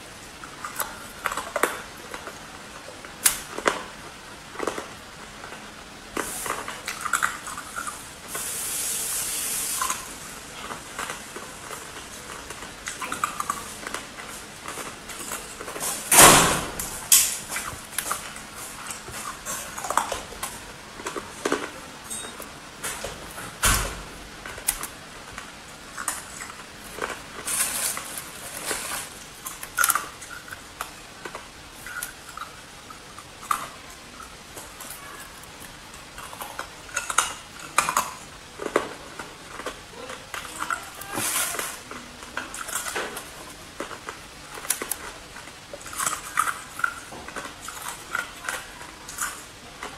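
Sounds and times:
ice being chewed: 0.2s - 16.1s, 17.1s - 23.6s, 24.4s - 49.9s
plastic bag rustling: 26.5s - 29.4s.

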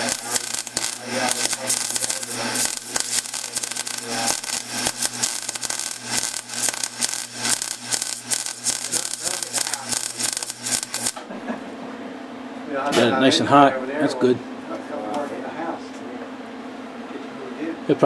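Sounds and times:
arc welding crackle: 0.0s - 11.2s.

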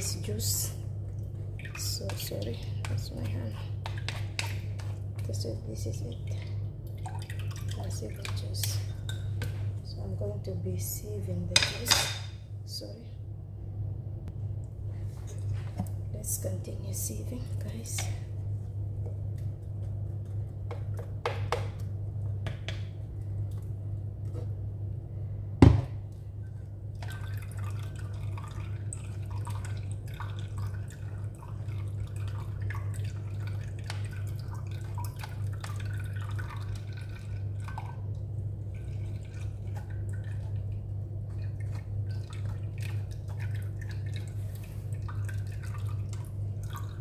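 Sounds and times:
steady low hum: 0.0s - 47.0s
juice dripping into jug: 26.1s - 47.0s.

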